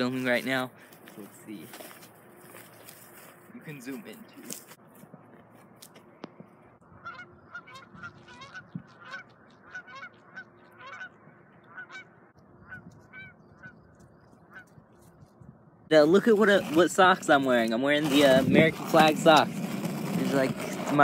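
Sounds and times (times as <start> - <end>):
waterfowl nasal calls: 7.0 - 13.9.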